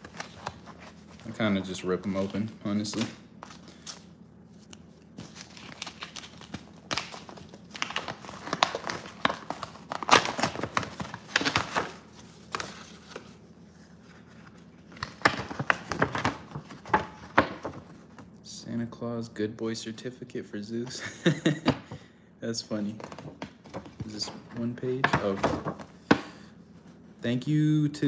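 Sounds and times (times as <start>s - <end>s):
paper tearing and crinkling: 5.1s - 13.2s.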